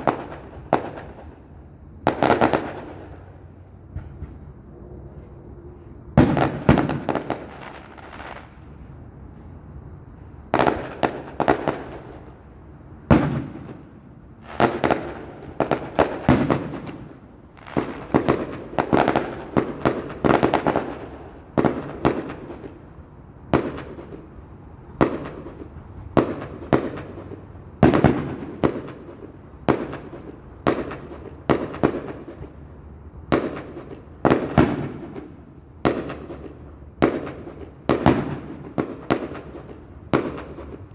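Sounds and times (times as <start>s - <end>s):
fireworks crackling: 0.0s - 3.4s, 6.2s - 8.9s, 10.5s - 12.2s, 13.0s - 22.8s, 33.3s - 40.9s
fireworks bangs: 0.0s - 4.4s, 5.2s - 8.8s, 10.4s - 12.4s, 13.0s - 24.2s, 24.9s - 32.6s, 33.3s - 40.9s.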